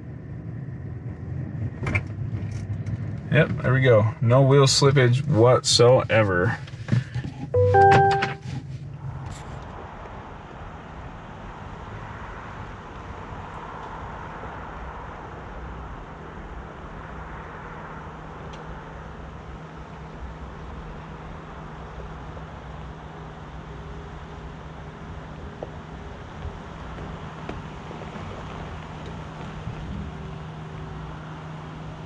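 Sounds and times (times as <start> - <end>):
truck engine at low revs: 0.0 - 32.0
tyres on rocky dirt trail: 5.9 - 7.6, 25.5 - 31.2.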